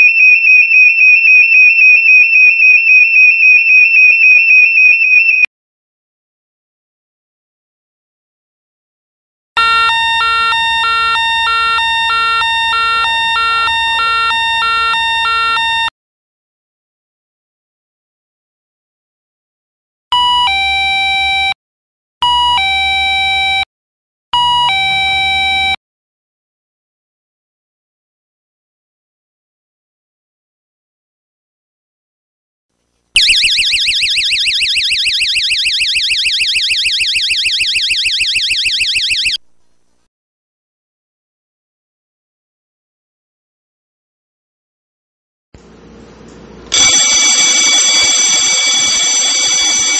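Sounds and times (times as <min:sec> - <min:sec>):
two-tone electronic alarm siren: 0:00.0 - 0:05.5, 0:09.6 - 0:15.9, 0:20.1 - 0:21.6, 0:22.2 - 0:23.7, 0:24.4 - 0:25.8, 0:33.2 - 0:39.4, 0:46.7 - 0:49.9.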